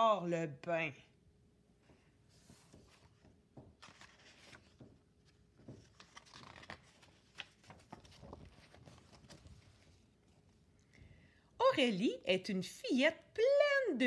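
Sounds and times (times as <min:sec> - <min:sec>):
book pages rustling and turning: 0:01.8 - 0:10.7.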